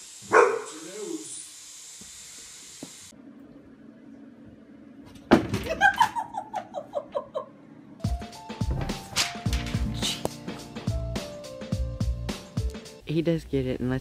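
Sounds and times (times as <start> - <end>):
person laughing hard: 5.6 - 7.6.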